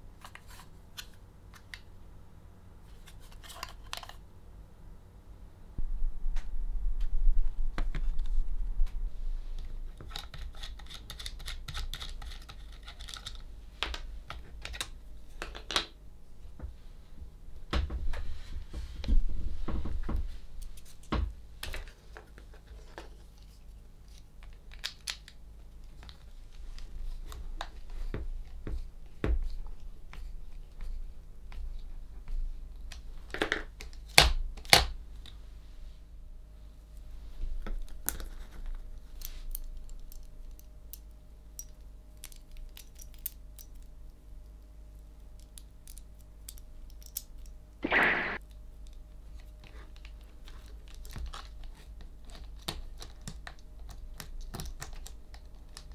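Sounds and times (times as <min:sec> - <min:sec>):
plastic parts clicking and tapping: 0:10.0 - 0:15.9.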